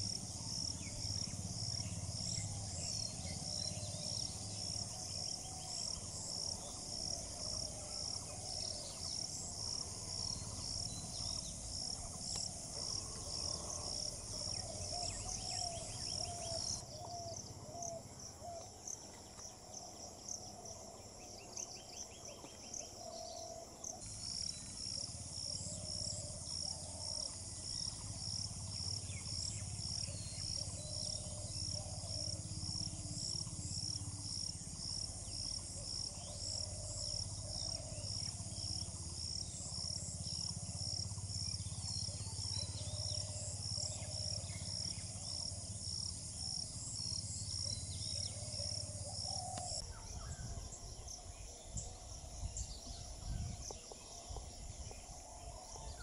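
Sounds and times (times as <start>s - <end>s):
insect calling in high pulses: 0.0s - 18.7s.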